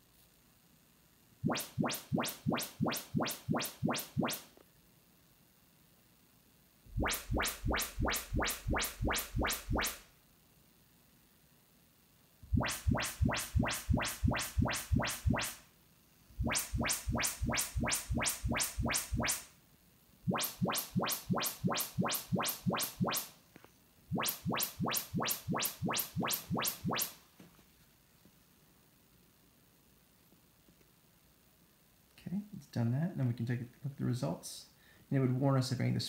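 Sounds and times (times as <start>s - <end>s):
sharp test pulses from speakers: 1.4s - 4.6s, 6.9s - 10.1s, 12.4s - 15.7s, 16.3s - 19.6s, 20.2s - 23.4s, 24.1s - 27.2s.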